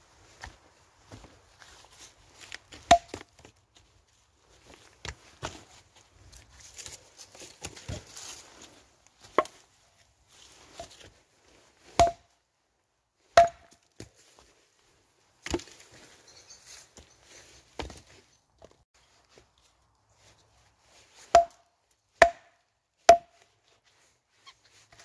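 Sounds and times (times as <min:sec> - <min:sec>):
axe chopping wood: 0:02.7 - 0:03.4, 0:09.2 - 0:09.6, 0:11.9 - 0:12.4, 0:13.3 - 0:14.1, 0:15.4 - 0:15.8, 0:17.8 - 0:18.0, 0:21.2 - 0:21.6, 0:22.2 - 0:23.4.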